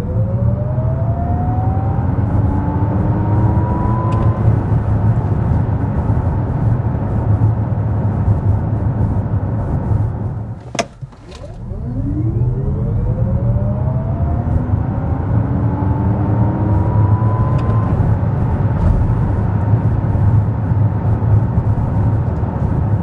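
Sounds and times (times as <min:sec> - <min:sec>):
tyre and road rumble: 0:10.5 - 0:11.9.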